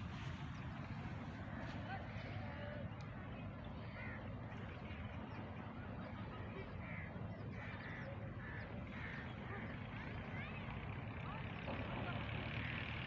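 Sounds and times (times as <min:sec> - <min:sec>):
steady low rumble: 0:00.0 - 0:10.4
birds short rough calls: 0:06.8 - 0:10.5.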